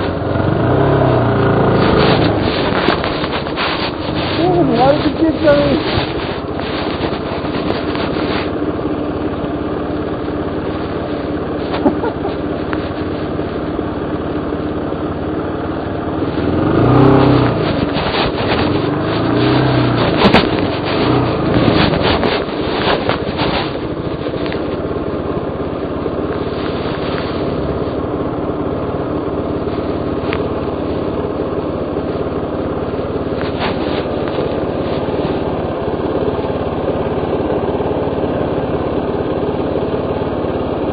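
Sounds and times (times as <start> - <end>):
motorcycle engine revving: 0.0 - 40.9
sharp knocks and clatter: 16.3 - 24.8.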